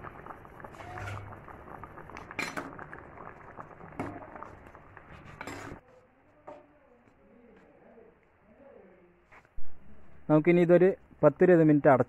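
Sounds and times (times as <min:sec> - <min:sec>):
ladle stirring thick curry: 0:00.0 - 0:06.6.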